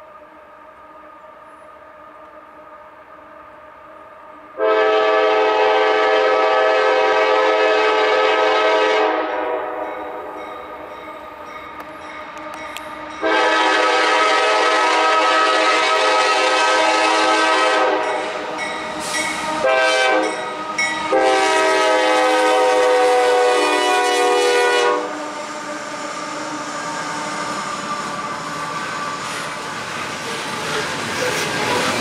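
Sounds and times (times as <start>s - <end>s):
locomotive engines and wheels rumbling: 0.0s - 32.0s
locomotive air horn blasts: 4.6s - 10.2s, 13.2s - 25.9s.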